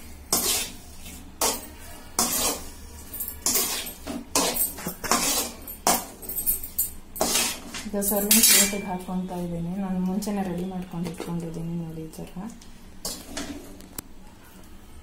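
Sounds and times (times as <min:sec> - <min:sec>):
metal ladle scraping a wok: 0:00.3 - 0:06.2, 0:07.2 - 0:09.3.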